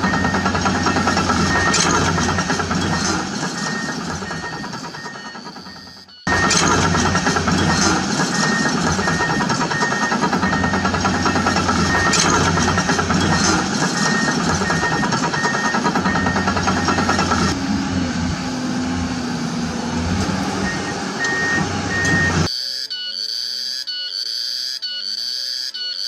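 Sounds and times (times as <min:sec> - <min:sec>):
rapid clatter: 0:00.0 - 0:05.7, 0:06.3 - 0:17.6
high beeps: 0:00.0 - 0:06.8, 0:08.2 - 0:17.6, 0:20.6 - 0:26.0
excavator engine hum: 0:00.0 - 0:22.6.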